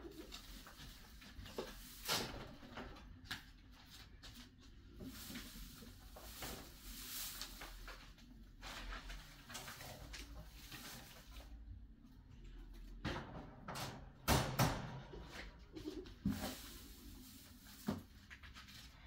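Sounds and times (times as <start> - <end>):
hay rustling: 4.4 - 11.5, 16.2 - 18.1.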